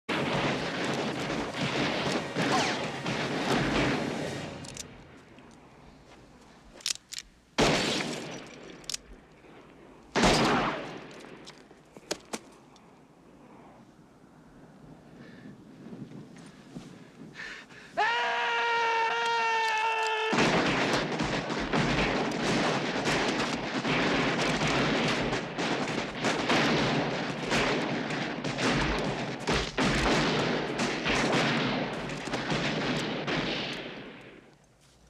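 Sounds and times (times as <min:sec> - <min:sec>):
revolver gunfire volley: 0:00.1 - 0:04.6, 0:07.6 - 0:08.4, 0:10.2 - 0:11.1, 0:20.3 - 0:34.4
man yelling: 0:18.0 - 0:20.4.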